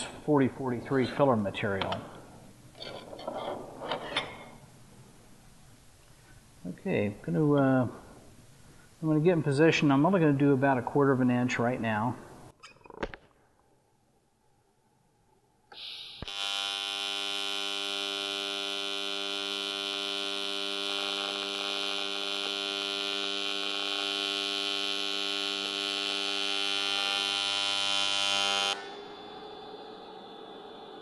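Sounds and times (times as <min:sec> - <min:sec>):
welding arc hiss: 0:15.7 - 0:17.1
welding arc buzzing: 0:15.8 - 0:29.0.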